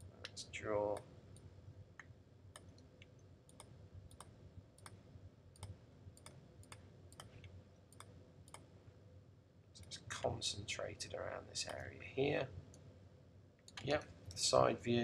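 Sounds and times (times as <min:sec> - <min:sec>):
faint computer mouse clicks: 0:00.2 - 0:05.0, 0:05.6 - 0:08.7.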